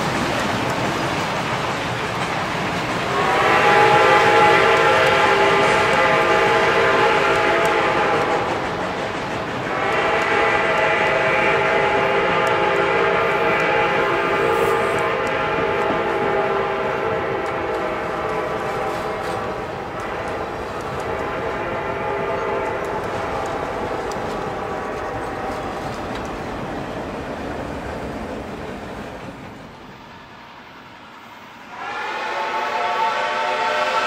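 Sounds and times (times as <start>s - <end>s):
rumble of passenger cars rolling: 0.0s - 34.0s
locomotive horn blasts: 3.1s - 8.6s, 9.7s - 26.0s, 31.7s - 34.0s.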